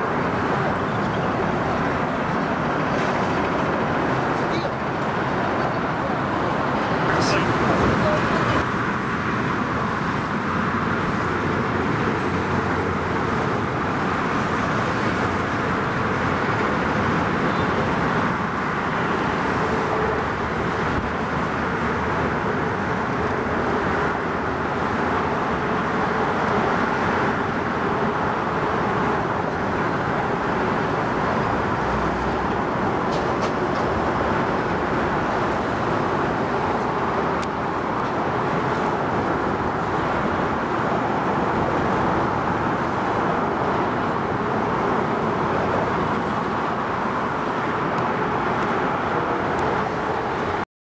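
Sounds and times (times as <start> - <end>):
road traffic rumble and hiss: 0.0 - 50.6.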